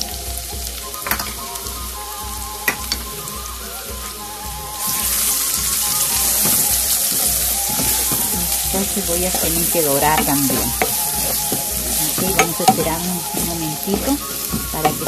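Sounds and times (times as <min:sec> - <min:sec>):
onions sizzling in oil: 0:00.0 - 0:15.0
utensils knocking on pan: 0:01.0 - 0:01.4, 0:04.0 - 0:15.0
wooden spoon stirring: 0:02.7 - 0:15.0.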